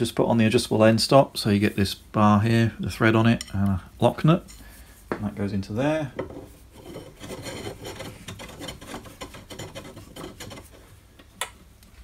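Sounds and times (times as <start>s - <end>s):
metal bar scraping and clicking: 6.8s - 10.8s.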